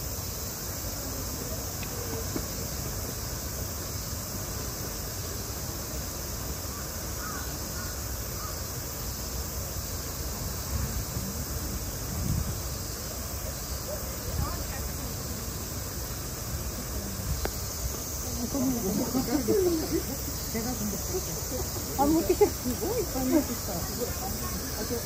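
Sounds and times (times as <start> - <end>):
high-pitched hiss: 0.0 - 25.0
faint crow caws: 6.7 - 8.6.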